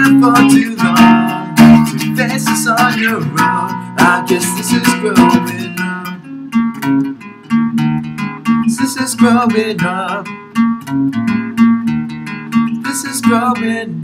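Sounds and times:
man singing: 0:00.0 - 0:06.6, 0:08.6 - 0:10.4, 0:12.8 - 0:14.0
acoustic guitar strumming: 0:00.0 - 0:14.0.

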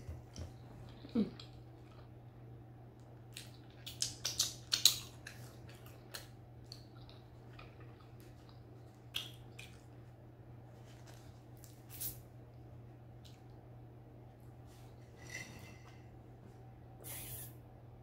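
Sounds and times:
chewing and lip smacks: 0:03.0 - 0:10.0.

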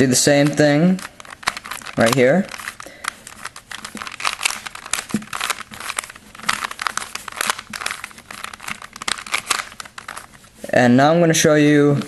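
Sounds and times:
puzzle cube plastic clicks: 0:00.0 - 0:10.5.

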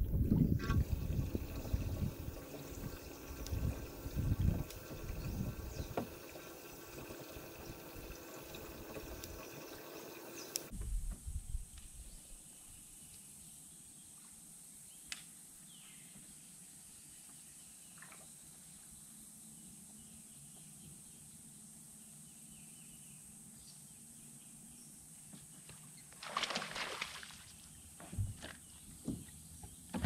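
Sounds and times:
faint steady hum: 0:00.0 - 0:10.7
water splash: 0:26.2 - 0:27.5
thumps on boat deck: 0:28.0 - 0:30.0.

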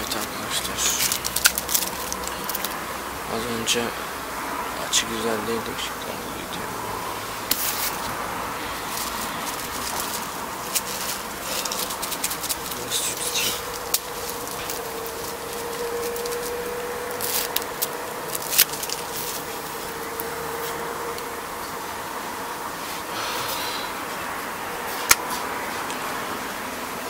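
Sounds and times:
small objects clicking and rustling: 0:00.0 - 0:02.8, 0:08.9 - 0:20.8
faint steady hum: 0:00.0 - 0:27.0
steady hiss: 0:00.0 - 0:27.0.

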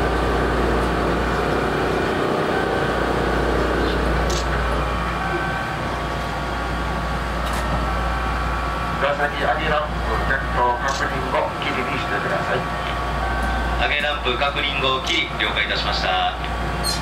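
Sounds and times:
mechanical hum of moving seat: 0:00.0 - 0:07.9
train equipment noise: 0:00.0 - 0:17.0.

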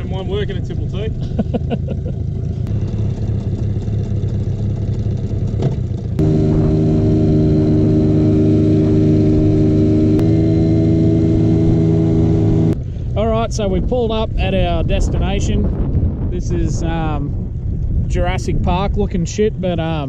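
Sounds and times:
outboard motor droning: 0:00.0 - 0:13.0.

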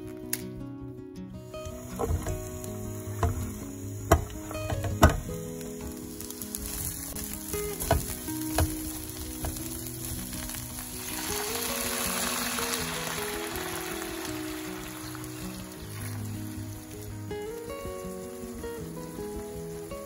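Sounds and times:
soft background music: 0:00.0 - 0:20.0
food sizzling in a pan: 0:01.5 - 0:20.0
utensil knocking against pan: 0:03.2 - 0:05.3, 0:07.8 - 0:08.8.

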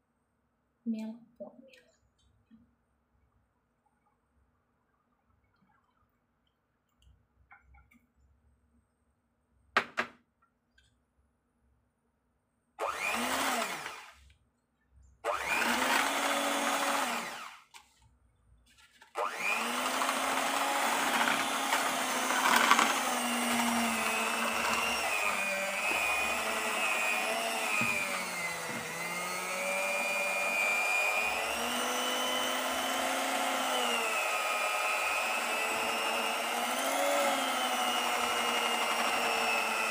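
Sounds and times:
electric hand mixer: 0:12.8 - 0:14.2, 0:15.2 - 0:17.8, 0:19.2 - 0:39.9.

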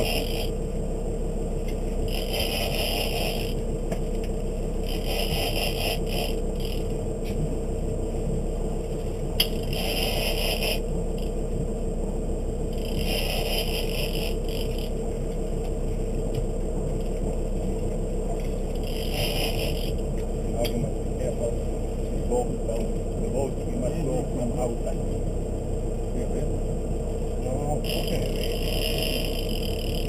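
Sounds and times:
fishing reel rasping: 0:00.0 - 0:00.6, 0:02.0 - 0:03.6, 0:04.8 - 0:06.9, 0:09.4 - 0:11.4, 0:12.7 - 0:15.0, 0:18.5 - 0:20.0, 0:27.8 - 0:30.0
low rumble: 0:00.0 - 0:30.0.

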